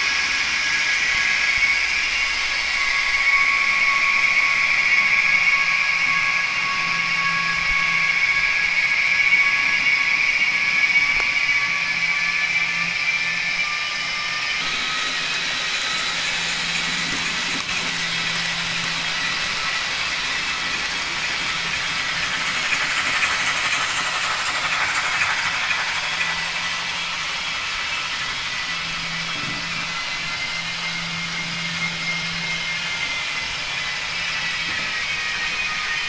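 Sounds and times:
electric motor whine: 0:00.0 - 0:36.0
small wheels rattling on rails: 0:14.3 - 0:36.0.

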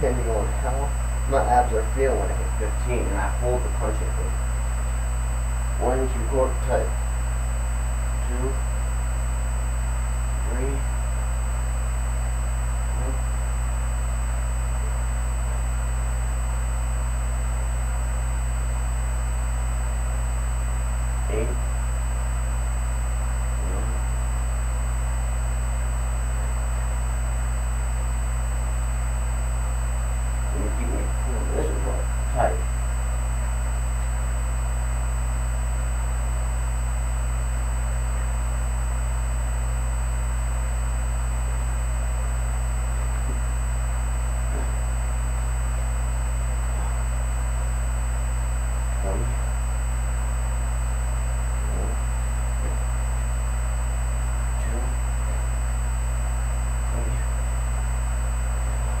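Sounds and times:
low electrical hum and hiss: 0:00.0 - 0:59.0.

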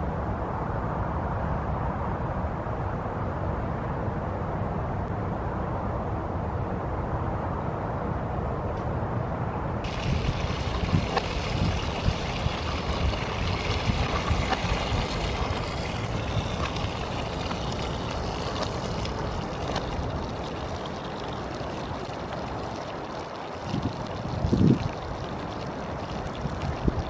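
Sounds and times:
burgers frying: 0:09.8 - 0:27.0.

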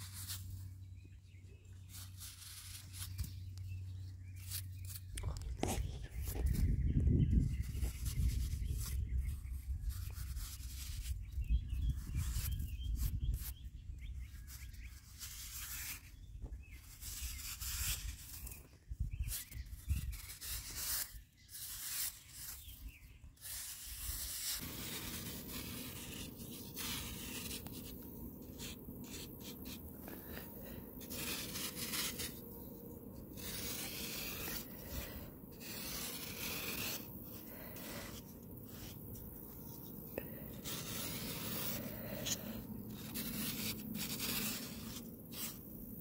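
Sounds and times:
metal tool scraping packed sand: 0:19.4 - 0:46.0.

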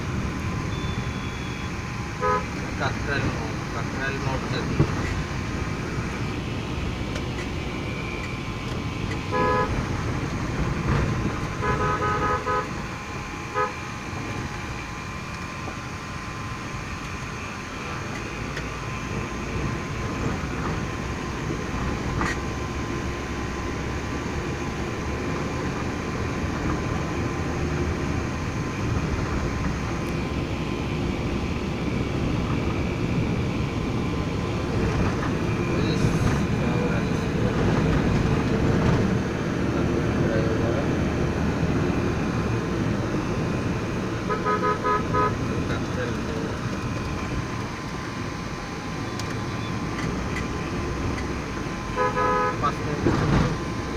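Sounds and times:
car road and engine noise: 0:00.0 - 0:53.9
car horn toots: 0:00.7 - 0:02.6, 0:09.3 - 0:09.8, 0:11.5 - 0:12.8, 0:13.5 - 0:13.8, 0:44.2 - 0:45.6, 0:51.9 - 0:52.8.

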